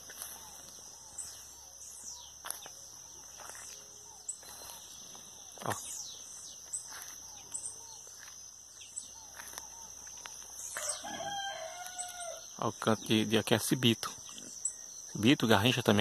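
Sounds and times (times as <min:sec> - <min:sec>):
songbirds whistling: 0:00.0 - 0:12.4.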